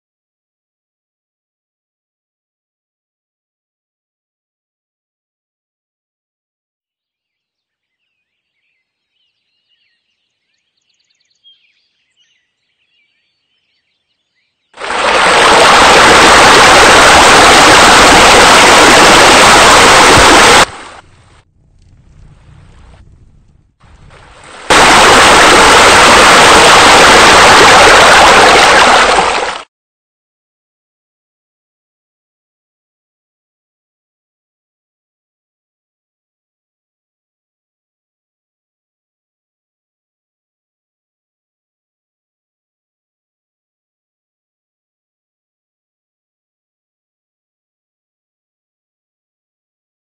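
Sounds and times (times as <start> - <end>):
faint birdsong chirps: 7.0 - 14.8
rush of falling water: 14.8 - 21.0, 24.2 - 29.6.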